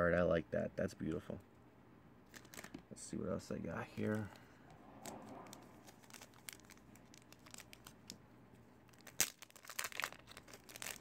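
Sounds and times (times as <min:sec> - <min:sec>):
plastic wrap crinkling and tearing: 0:02.3 - 0:02.8, 0:05.0 - 0:08.2, 0:08.8 - 0:11.0.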